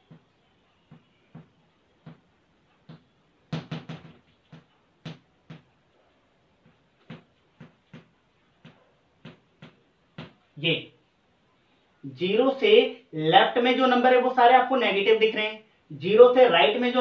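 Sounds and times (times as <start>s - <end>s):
chalk tapping on blackboard: 0.9s - 5.8s, 6.6s - 10.4s.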